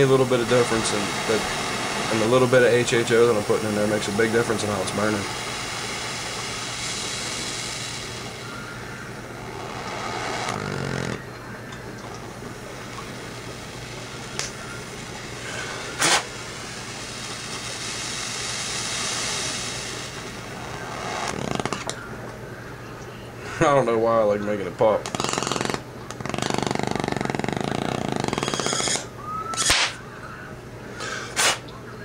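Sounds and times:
torch flame hissing: 0.0 - 11.4, 12.0 - 22.1, 25.1 - 30.0, 31.0 - 31.6
low steady hum: 0.0 - 32.0
sharp gas pop: 15.6 - 16.3, 28.2 - 30.0, 31.0 - 31.6.

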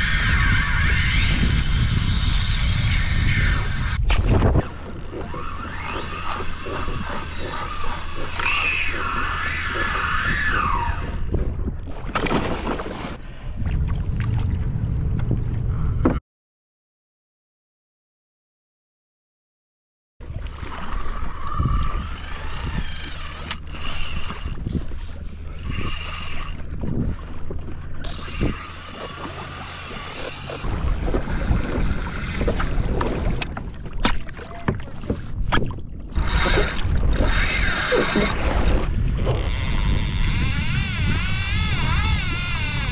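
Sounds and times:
fishing reel drag whining: 0.0 - 4.0, 4.6 - 11.4, 20.5 - 24.7, 25.4 - 26.8, 28.0 - 33.5, 36.2 - 38.4, 39.3 - 42.9
wind buffeting microphone: 0.0 - 12.6, 13.4 - 16.2, 20.2 - 42.9
water sloshing around kayak: 4.0 - 15.7, 20.2 - 42.9.

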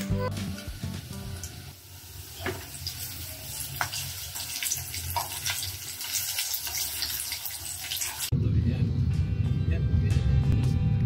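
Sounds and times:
food frying in oil: 0.4 - 8.3
oil popping and crackling: 0.4 - 8.3.

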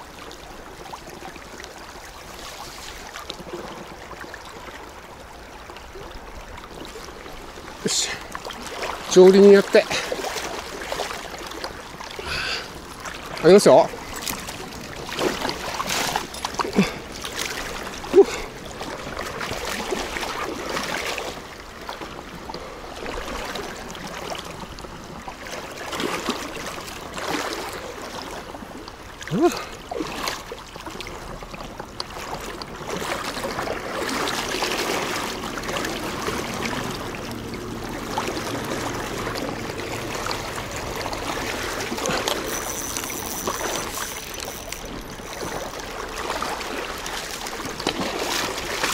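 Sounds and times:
river rushing: 32.8 - 48.9.

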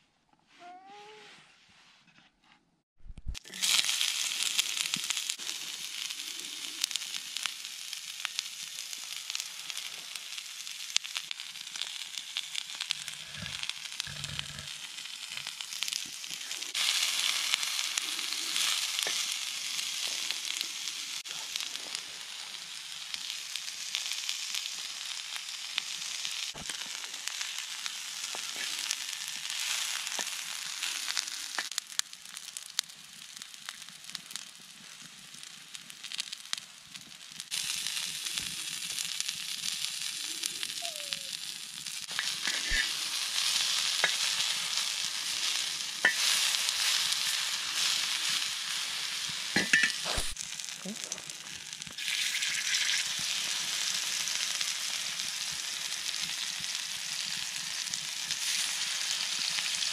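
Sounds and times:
fire crackling: 3.0 - 59.9
onions sizzling in a frying pan: 3.3 - 59.9.

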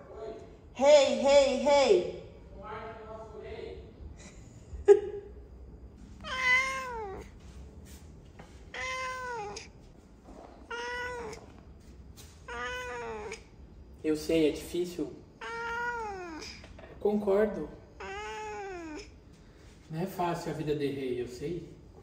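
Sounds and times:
cat meowing: 6.2 - 7.4, 8.6 - 9.8, 10.6 - 11.7, 12.4 - 13.6, 15.4 - 16.6, 17.9 - 19.2.

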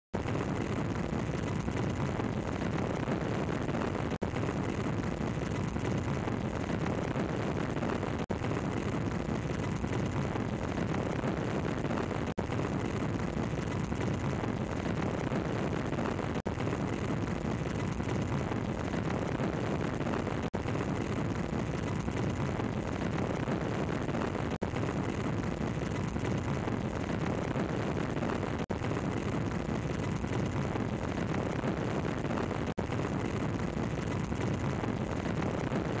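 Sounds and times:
wind rush: 0.2 - 36.0.

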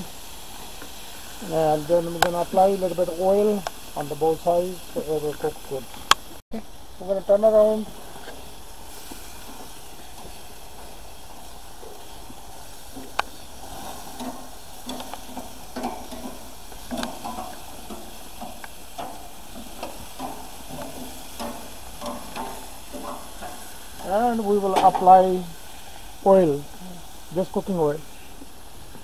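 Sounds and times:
chicken sizzling on grill: 0.0 - 29.0
tongs clicking on grill grates: 10.2 - 24.1.

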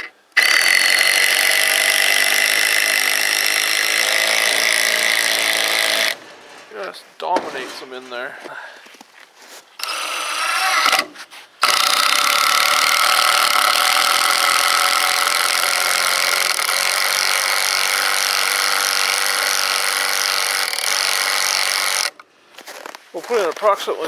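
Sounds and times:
impact driver driving screw into wood: 0.0 - 6.2, 9.8 - 22.2.

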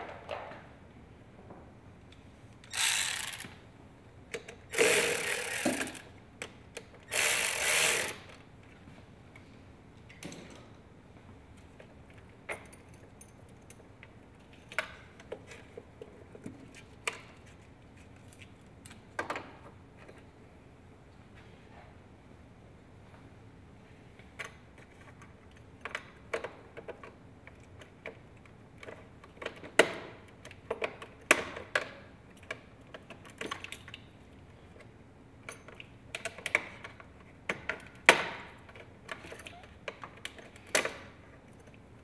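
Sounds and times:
ratchet wrench clicking: 2.6 - 3.6, 4.7 - 6.1, 7.1 - 8.3
hand tools clicking and knocking: 4.3 - 6.0.

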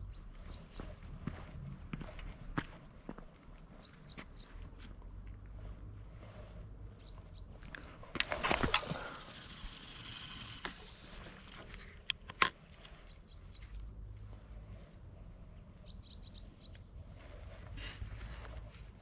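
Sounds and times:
faint bird chirps: 12.9 - 14.2, 15.7 - 17.1
rustling: 16.8 - 19.0.

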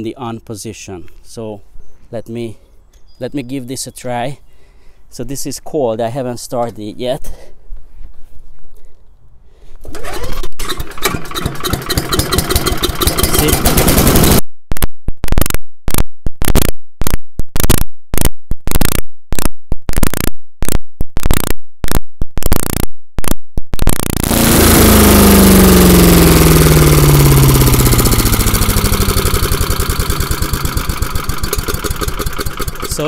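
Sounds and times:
wood chipper engine running: 9.9 - 14.4, 24.2 - 33.0.

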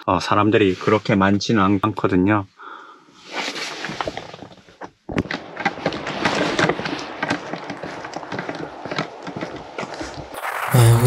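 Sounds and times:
outdoor noise: 2.6 - 11.0
fishing gear knocking and rustling: 3.8 - 10.4
footsteps walking briskly: 5.1 - 10.5.

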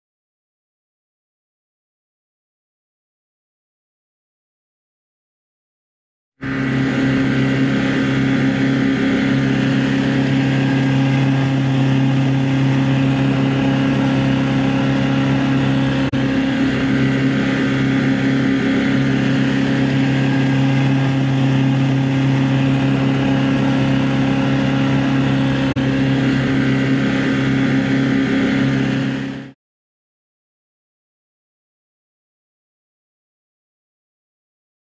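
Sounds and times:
water scooter motor droning: 6.4 - 29.6.

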